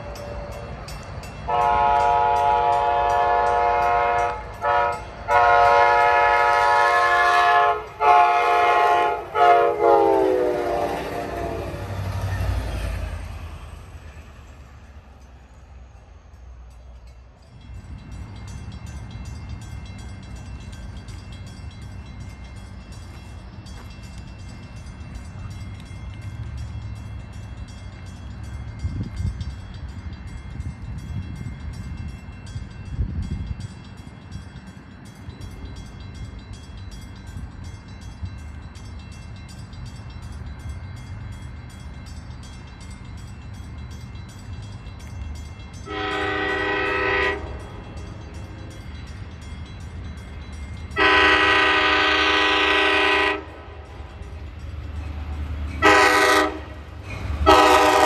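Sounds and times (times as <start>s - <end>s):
low train rumble: 0.0s - 58.0s
train horn blast: 1.5s - 12.0s, 45.9s - 47.7s, 51.0s - 54.3s, 55.7s - 58.0s.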